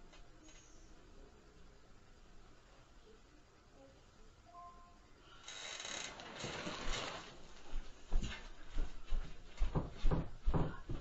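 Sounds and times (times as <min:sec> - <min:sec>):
rustling and rattling: 0:05.8 - 0:07.8.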